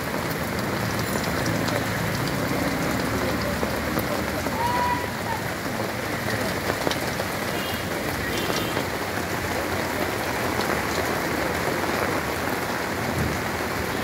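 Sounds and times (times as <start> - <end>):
rain falling on pavement: 0.0 - 14.0
drip ticks: 0.2 - 4.5.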